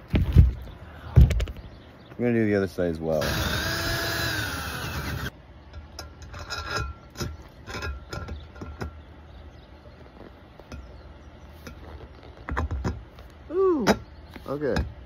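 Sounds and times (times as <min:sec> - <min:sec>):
drill drilling metal: 0:03.2 - 0:05.3.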